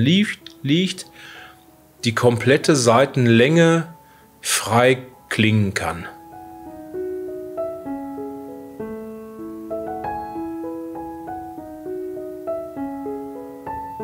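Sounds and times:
solo piano melody: 0.0s - 14.0s.

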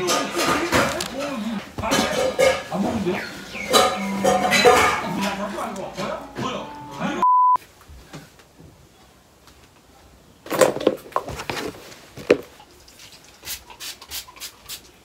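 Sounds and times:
loud test-tone beep: 7.2s - 7.6s.

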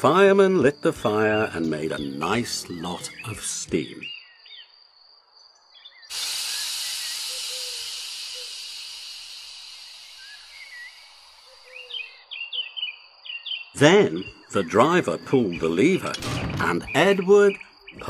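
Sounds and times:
birds chirping: 0.0s - 18.0s
steam locomotive hissing: 6.1s - 12.0s.

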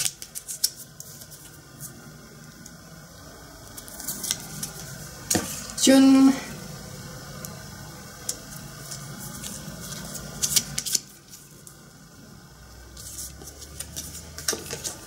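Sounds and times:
cards sliding and flicking: 0.0s - 2.0s, 3.8s - 5.7s, 8.2s - 11.8s, 13.0s - 15.0s.

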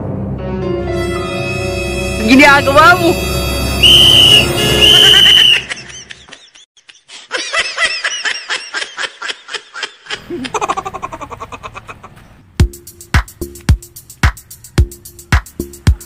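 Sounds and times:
steady high tone: 1.0s - 5.7s.

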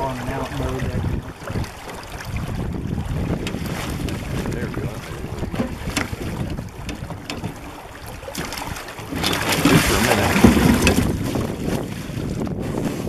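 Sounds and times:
river water flowing: 0.0s - 12.2s
wind on microphone: 0.0s - 13.0s
light knocks: 5.5s - 7.8s
fish splashing in a net: 5.7s - 12.2s.

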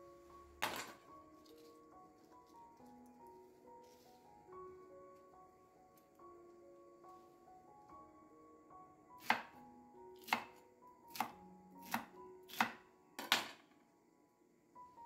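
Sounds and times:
knife chopping vegetables: 9.2s - 9.5s, 10.2s - 12.8s.

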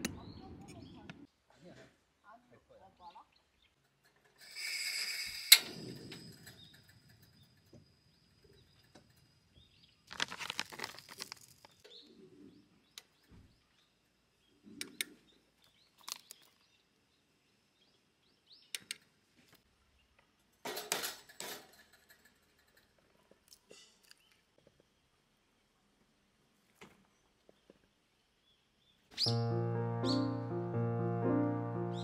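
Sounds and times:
rustling: 10.1s - 11.8s.

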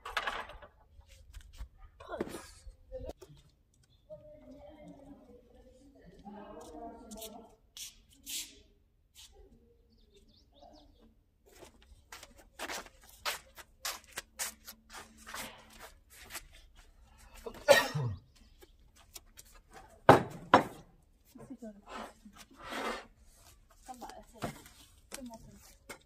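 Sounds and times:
footsteps on plastic mat: 11.5s - 17.0s.

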